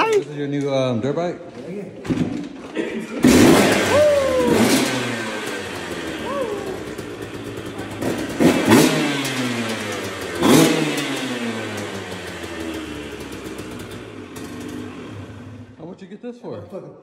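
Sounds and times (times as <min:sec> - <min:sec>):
dirt bike engine revving: 0:03.1 - 0:15.8.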